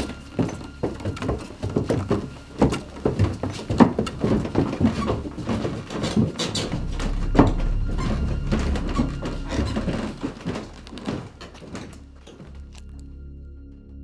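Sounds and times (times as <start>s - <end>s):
footsteps on stairs: 0.0s - 12.8s
low steady drone: 6.4s - 14.0s.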